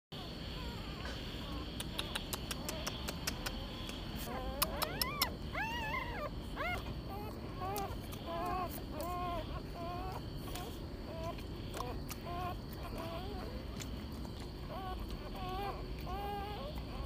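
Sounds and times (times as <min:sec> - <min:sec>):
puppies squealing and whimpering: 0:00.2 - 0:17.0
faint sharp clicks: 0:01.7 - 0:05.3.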